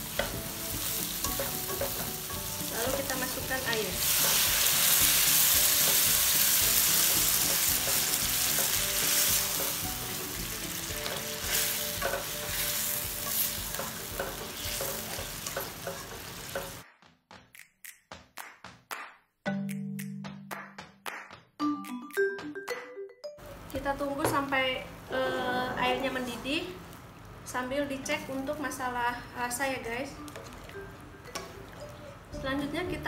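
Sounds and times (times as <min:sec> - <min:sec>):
food sizzling in hot oil: 0:00.0 - 0:16.8.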